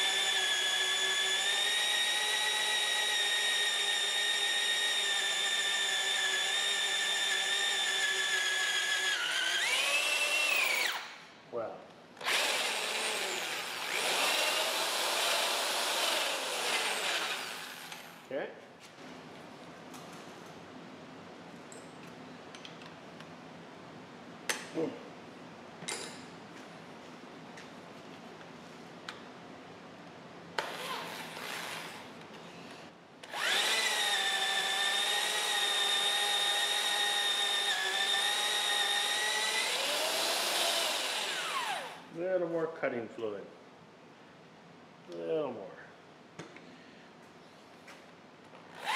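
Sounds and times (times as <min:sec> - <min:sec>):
electric drill whining: 0:00.0 - 0:11.2, 0:12.2 - 0:18.2, 0:30.6 - 0:32.1, 0:33.2 - 0:42.0.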